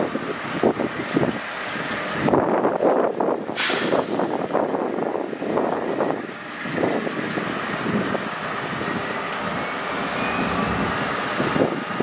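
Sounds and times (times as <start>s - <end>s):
large engine running: 0.0s - 12.0s
faint rising whine: 8.7s - 11.4s.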